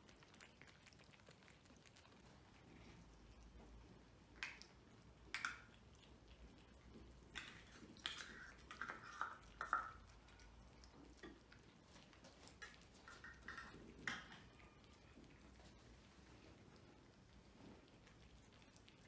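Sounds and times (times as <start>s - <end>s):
cats chewing kibble: 0.0s - 19.0s
food clinking against plates: 7.3s - 10.1s.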